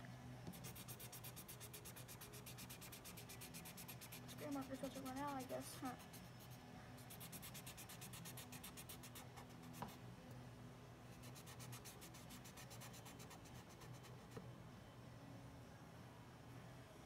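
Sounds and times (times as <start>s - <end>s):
faint steady hum: 0.0s - 17.0s
marker scratching on cardboard: 0.5s - 10.0s, 11.2s - 14.4s.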